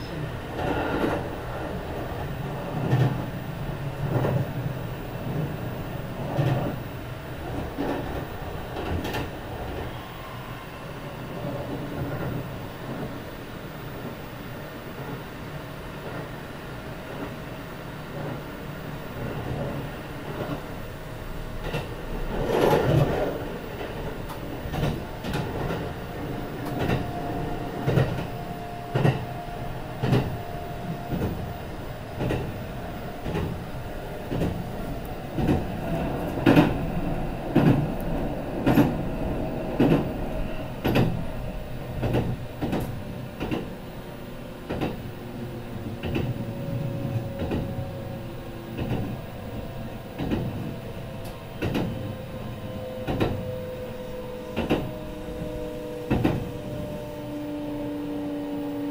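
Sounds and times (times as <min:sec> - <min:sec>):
steady train rumble: 0:00.0 - 0:58.9.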